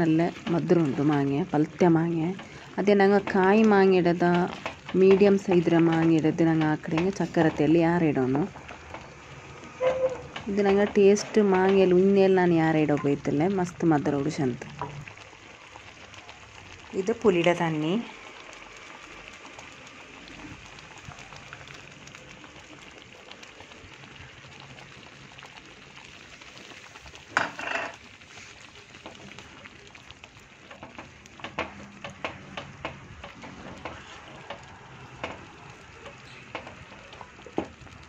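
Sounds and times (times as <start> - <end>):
curry bubbling and sizzling: 0.0 - 38.0.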